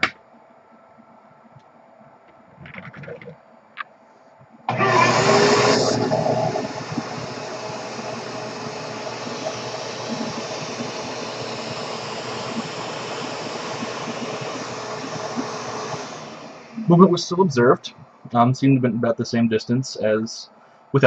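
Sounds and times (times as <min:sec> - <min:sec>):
vacuum cleaner running: 0:04.7 - 0:17.4.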